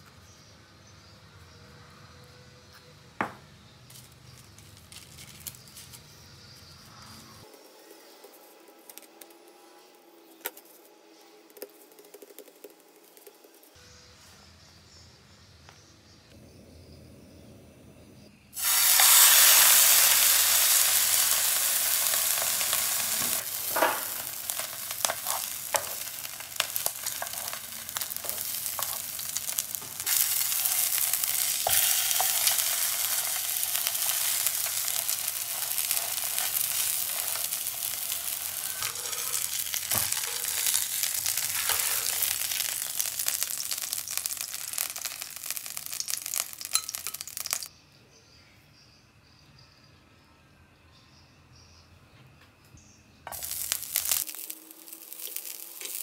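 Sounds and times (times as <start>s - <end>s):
fish sizzling in frying pan: 18.6s - 47.7s, 53.3s - 56.0s
utensils clicking and tapping: 22.5s - 45.4s, 46.0s - 47.7s.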